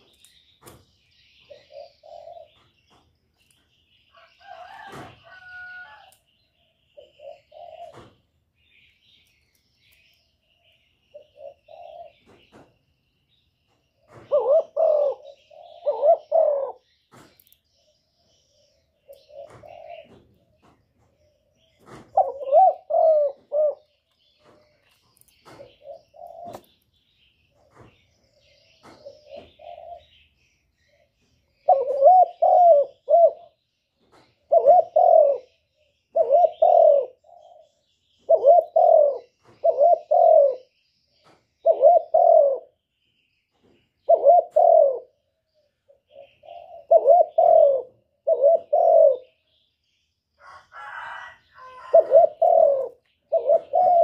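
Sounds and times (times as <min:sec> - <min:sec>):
dove cooing: 0:01.4 - 0:03.0, 0:06.9 - 0:08.2, 0:11.1 - 0:12.4, 0:14.0 - 0:17.0, 0:18.6 - 0:24.8, 0:25.4 - 0:26.8, 0:27.5 - 0:30.3, 0:30.9 - 0:33.6, 0:34.4 - 0:42.8, 0:44.0 - 0:49.5, 0:50.4 - 0:54.0.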